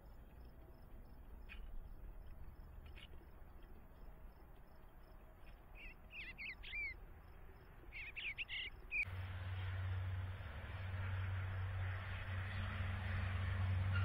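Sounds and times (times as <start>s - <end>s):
steady hiss with low hum: 0.0s - 12.7s
bird warbling song: 5.7s - 7.0s, 7.9s - 9.1s.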